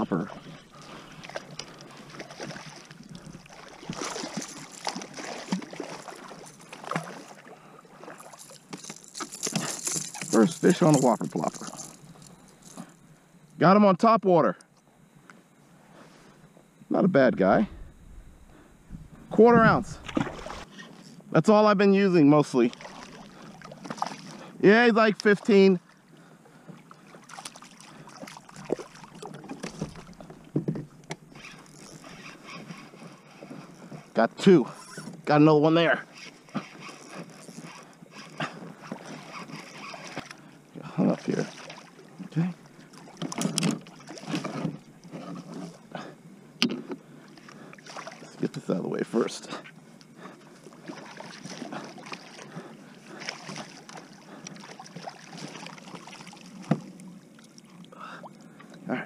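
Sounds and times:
light splashing: 0.0s - 13.0s, 17.7s - 20.7s, 22.7s - 24.4s
fish splashing in water: 0.8s - 10.4s, 19.9s - 20.7s, 22.7s - 24.4s, 47.7s - 48.4s, 50.7s - 57.6s.

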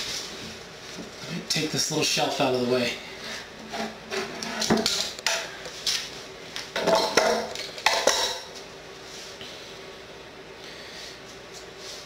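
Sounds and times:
wooden shelf knocking and clattering: 6.8s - 8.4s.

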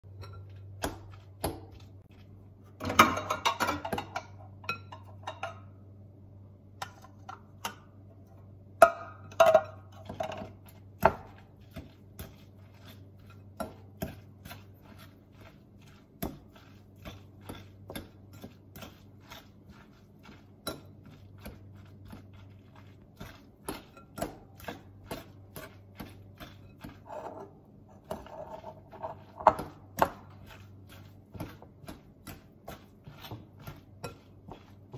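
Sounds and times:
fork scraping glass bowl: 11.6s - 34.9s.

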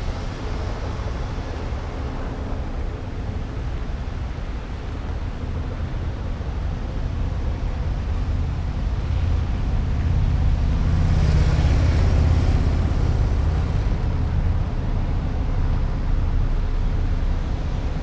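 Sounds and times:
vehicles driving past: 0.0s - 18.0s.

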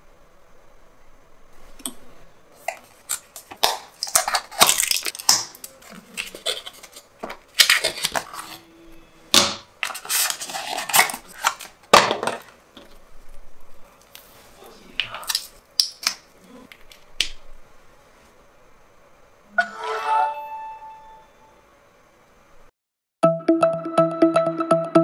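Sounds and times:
paperboard box crackling and rustling: 9.8s - 11.8s.

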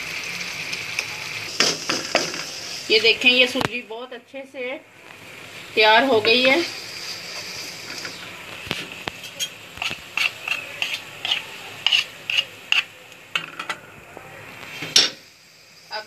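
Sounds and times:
spatula scraping frying pan: 6.2s - 13.0s.

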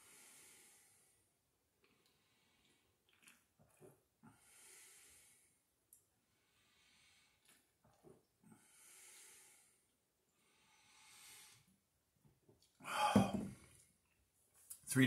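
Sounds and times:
soft nasal breathing: 0.0s - 1.2s, 4.2s - 5.6s, 6.2s - 7.6s, 8.5s - 11.8s
man gulping from glass bottle: 2.0s - 4.1s, 12.6s - 13.8s
loud exhale: 12.8s - 13.5s.

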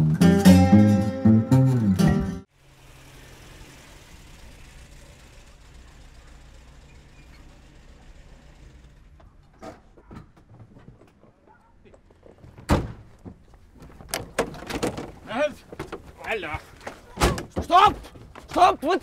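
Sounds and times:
car engine idling: 2.5s - 9.6s.

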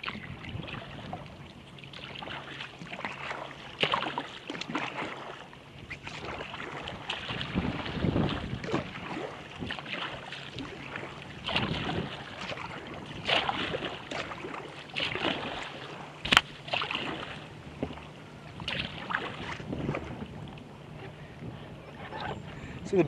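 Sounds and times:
water slapping against kayak hull: 0.0s - 23.0s.

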